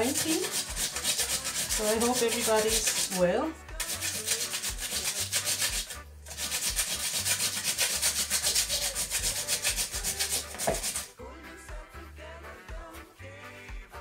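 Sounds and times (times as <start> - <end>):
potatoes grated on metal grater: 0.0 - 11.1.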